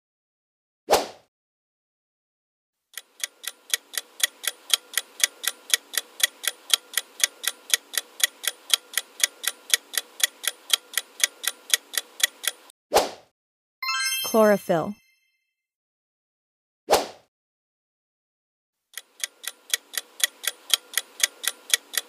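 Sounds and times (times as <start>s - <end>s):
clock ticking timer: 2.9s - 12.7s, 18.9s - 22.0s.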